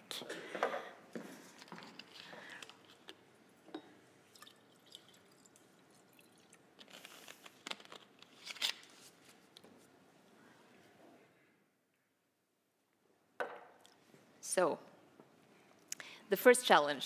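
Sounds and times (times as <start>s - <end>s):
water pouring into glass: 4.3s - 6.6s.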